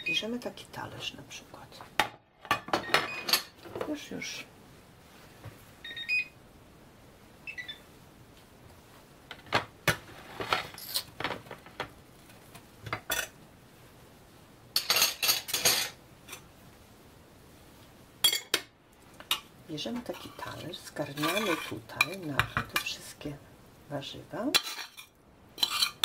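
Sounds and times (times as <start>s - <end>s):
metal utensils clinking on pan: 14.8s - 16.4s, 18.2s - 18.6s, 19.2s - 23.0s, 24.5s - 26.0s.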